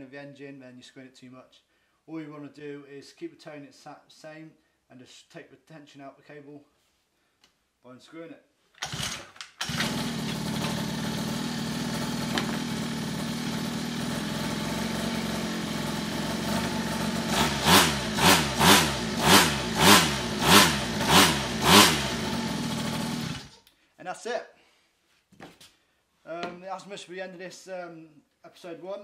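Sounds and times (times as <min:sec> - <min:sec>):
two-stroke engine idling and revving: 0:08.8 - 0:23.6.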